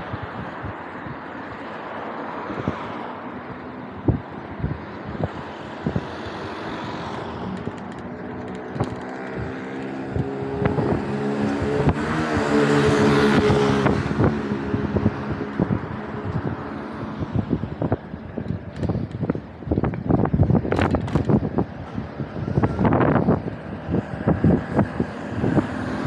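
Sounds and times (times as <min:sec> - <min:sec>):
vehicle engine passing by: 0:04.0 - 0:17.9
bicycle knocks and rattles: 0:07.2 - 0:10.7, 0:17.9 - 0:21.8.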